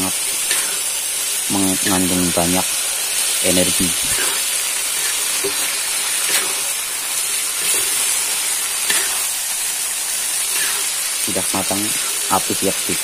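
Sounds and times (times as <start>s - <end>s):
stir-fry sizzling in a wok: 0.0s - 13.0s
spatula scraping a pan: 0.4s - 0.9s, 4.0s - 9.4s, 10.4s - 11.1s.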